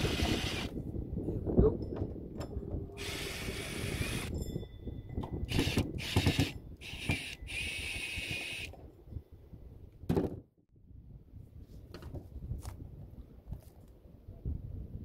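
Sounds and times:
cordless drill whining: 0.0 - 0.7, 3.0 - 4.3, 5.5 - 8.8.

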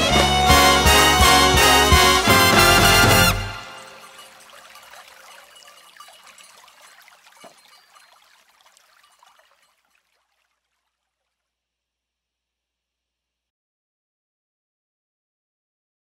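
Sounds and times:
audience applause: 0.0 - 4.3.

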